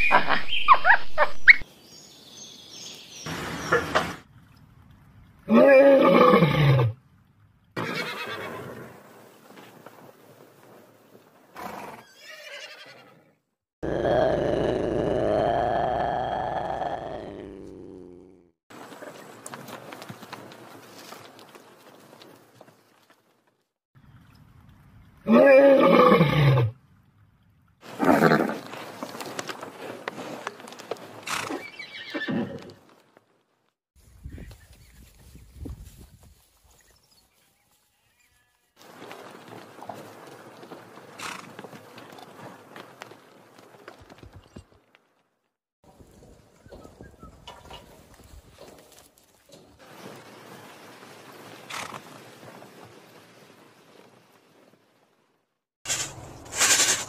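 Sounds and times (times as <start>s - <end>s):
horses neighing: 5.5s - 7.0s, 7.8s - 9.0s, 11.6s - 18.4s, 25.3s - 26.7s, 27.8s - 29.4s, 31.1s - 32.9s
ponies whinnying: 5.5s - 7.0s, 7.8s - 8.9s, 11.6s - 13.3s, 27.9s - 28.8s, 31.2s - 32.8s
lion roaring: 13.8s - 18.5s.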